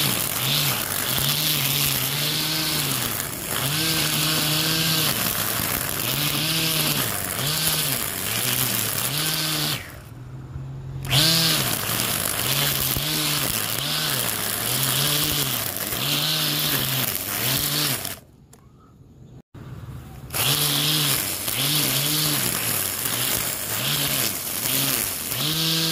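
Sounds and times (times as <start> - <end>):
grass trimmer motor whine: 0.0 - 10.1, 11.0 - 18.2, 20.3 - 25.9
hiss of cut grass: 20.4 - 25.9.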